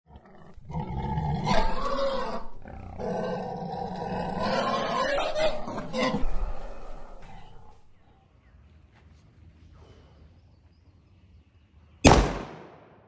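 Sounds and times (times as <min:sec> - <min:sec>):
wild animal call: 0:00.1 - 0:07.9.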